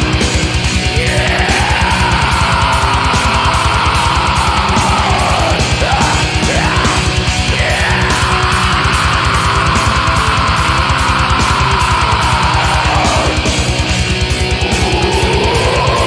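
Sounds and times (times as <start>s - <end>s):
heavy metal music: 0.0s - 16.0s
sliding guitar notes: 0.0s - 16.0s.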